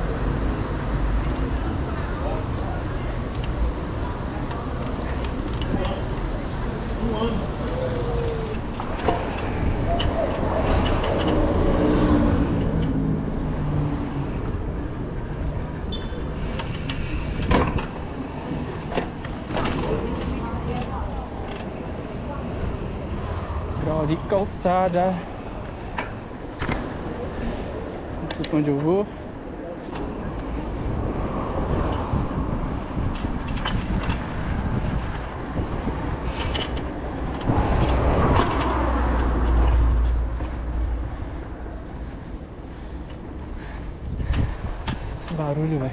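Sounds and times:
road rumble: 0.0s - 45.9s
bicycle rattles: 2.2s - 45.9s
wind rushing over microphone: 3.9s - 28.2s, 30.1s - 45.9s
wind on microphone: 30.2s - 42.7s, 43.3s - 45.2s.

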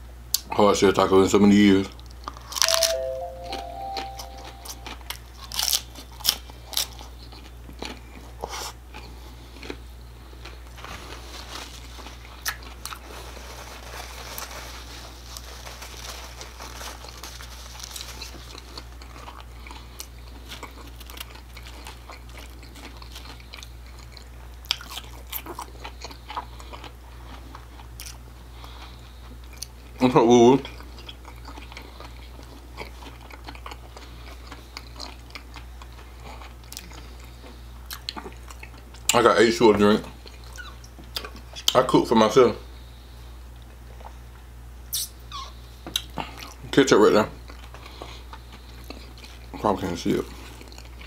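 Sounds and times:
crunching taco bites: 1.9s - 3.0s, 3.7s - 30.0s, 30.6s - 41.9s
chewing: 4.0s - 13.5s, 16.8s - 30.0s, 30.6s - 39.2s, 47.4s - 51.0s.

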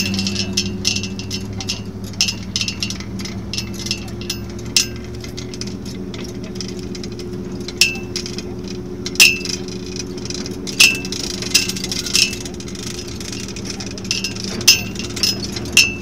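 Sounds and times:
metallic clinks and rattles: 0.0s - 16.0s
truck engine running: 0.0s - 16.0s.

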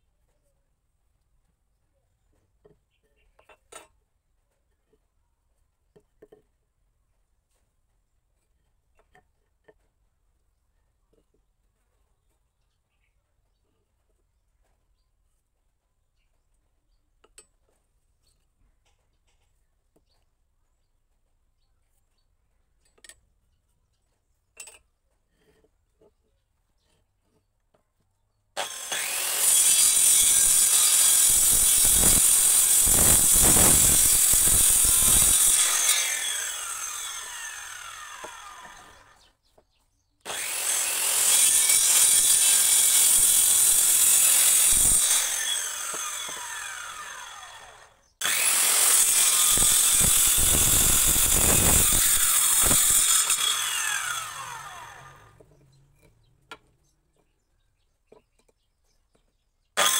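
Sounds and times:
circular saw cutting wood: 28.6s - 39.3s, 40.2s - 56.2s.

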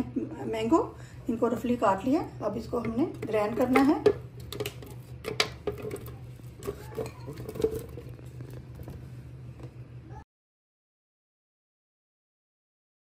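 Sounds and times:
low steady hum: 0.0s - 10.2s
glass bowl clinking on jar: 6.6s - 8.0s.

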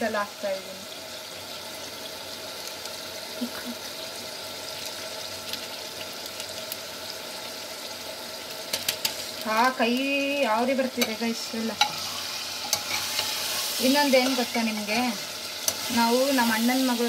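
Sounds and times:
pan sizzling: 0.0s - 17.0s
faint crackles: 4.7s - 6.9s.

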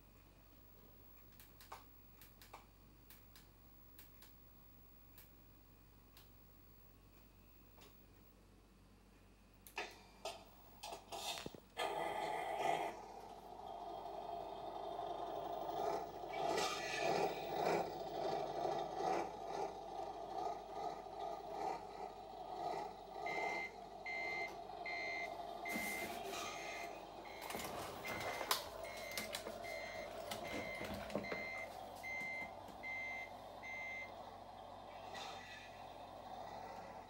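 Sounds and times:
model truck engine noise: 10.2s - 37.0s
reversing alarm beeping: 21.6s - 34.3s.

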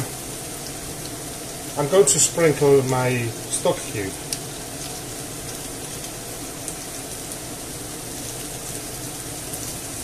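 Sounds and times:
vegetables sizzling in a frying pan: 0.0s - 10.0s.

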